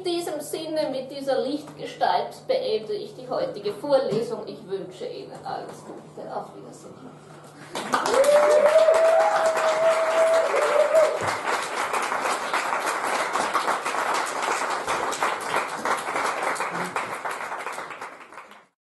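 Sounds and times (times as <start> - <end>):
audience applauding: 7.6 - 18.8.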